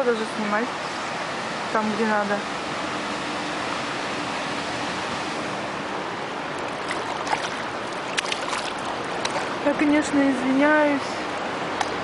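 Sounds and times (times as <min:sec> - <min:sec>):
water rushing around a boat: 0:00.0 - 0:12.0.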